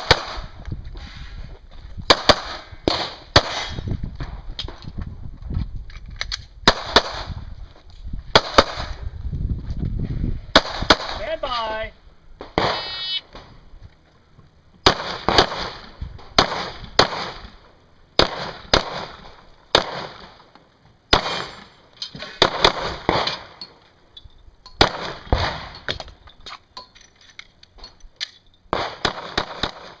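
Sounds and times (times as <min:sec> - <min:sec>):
pistol shots: 0:12.4 - 0:13.0, 0:14.8 - 0:17.5, 0:18.2 - 0:20.4, 0:21.1 - 0:21.7, 0:22.4 - 0:23.6, 0:24.8 - 0:25.8, 0:28.7 - 0:30.0
shot timer beep: 0:12.8 - 0:13.2.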